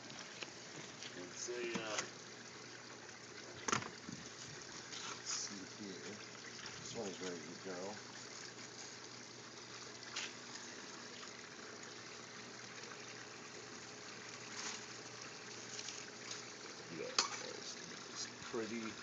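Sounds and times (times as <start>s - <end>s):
faint steady hum: 0.0s - 19.0s
water trickling: 0.0s - 19.0s
leaves rustling: 14.4s - 16.6s.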